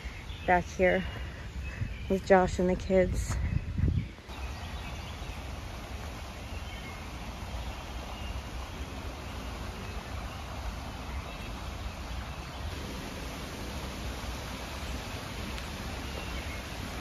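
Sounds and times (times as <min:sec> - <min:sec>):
stream rushing over rocks: 0:04.3 - 0:17.0.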